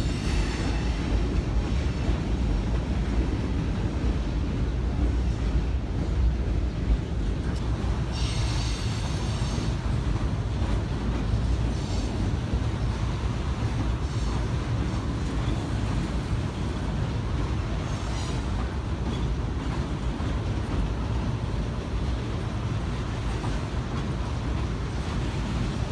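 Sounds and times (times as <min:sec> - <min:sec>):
train wheels rumbling on steel trestle: 0:00.0 - 0:25.9.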